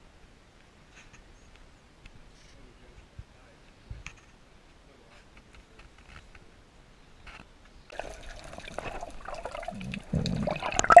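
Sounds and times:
water sloshing and bubbling: 0:07.9 - 0:11.0.

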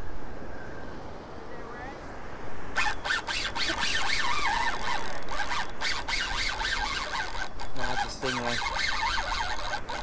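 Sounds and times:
fishing reel whirring: 0:02.8 - 0:10.0.

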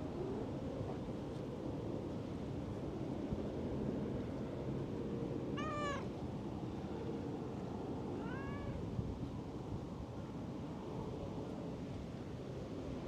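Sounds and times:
cat meowing: 0:05.6 - 0:06.1, 0:08.2 - 0:08.8.

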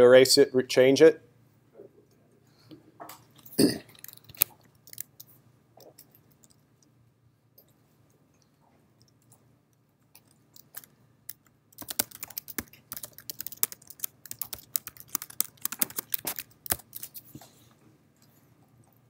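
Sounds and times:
computer keyboard typing: 0:03.9 - 0:06.6, 0:10.2 - 0:17.2.

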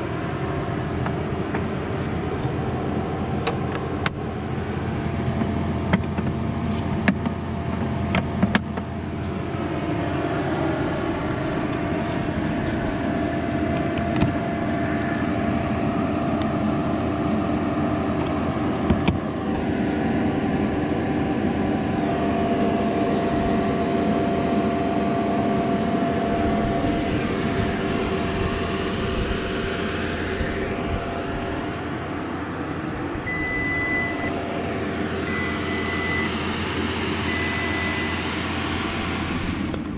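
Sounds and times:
faint electric motor whine: 0:00.0 - 0:39.9
road and tyre noise: 0:00.0 - 0:39.9
brief high beep: 0:33.3 - 0:34.3.

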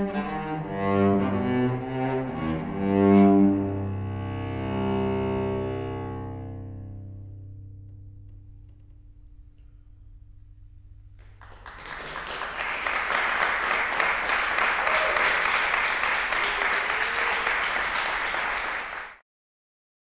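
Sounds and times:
audience applauding: 0:11.2 - 0:19.2.

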